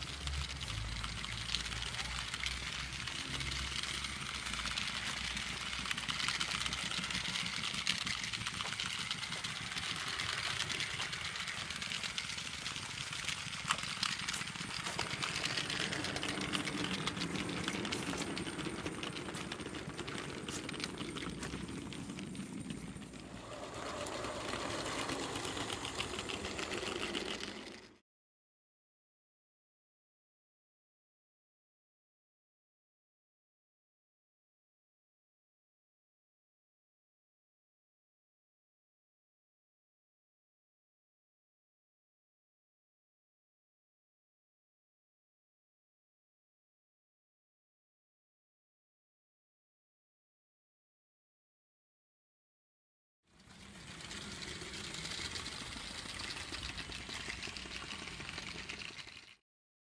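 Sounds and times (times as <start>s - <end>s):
model train whirring: 0.0s - 28.0s, 53.3s - 59.4s
wheels clicking on rails: 0.0s - 28.0s, 53.3s - 59.4s.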